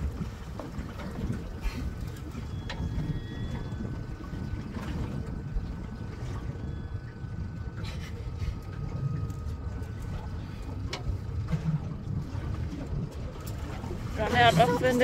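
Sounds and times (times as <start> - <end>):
boat engine rumble: 0.0 - 15.0.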